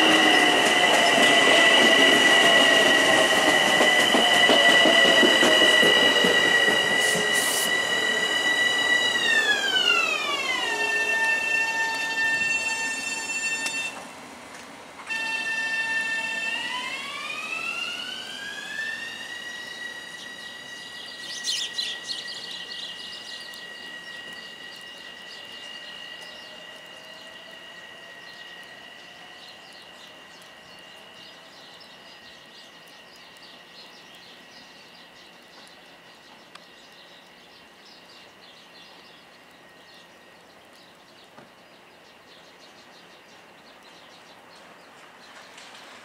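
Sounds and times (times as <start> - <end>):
electric train inverter whine: 0.0 - 46.0
high chirps: 17.7 - 32.4.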